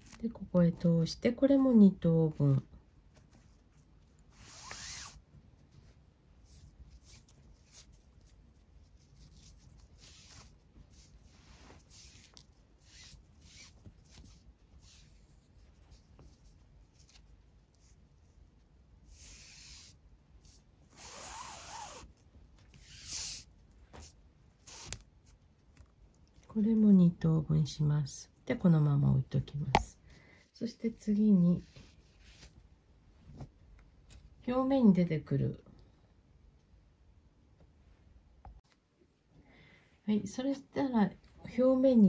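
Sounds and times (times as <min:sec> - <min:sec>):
paracord swishing: 0:03.5 - 0:05.2, 0:06.4 - 0:18.0, 0:19.1 - 0:25.4, 0:31.6 - 0:32.6.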